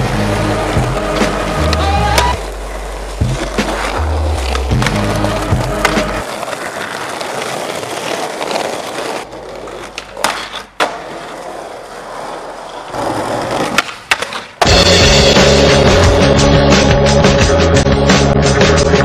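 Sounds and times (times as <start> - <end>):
skateboard wheels rolling on concrete: 0.0 - 19.0
skateboard clacking on the ground: 3.3 - 14.7.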